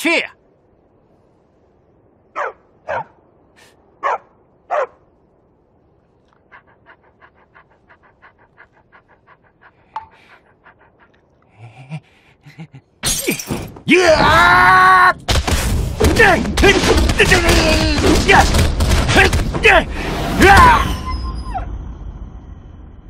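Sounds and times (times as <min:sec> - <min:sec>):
dog panting: 0:06.5 - 0:11.4.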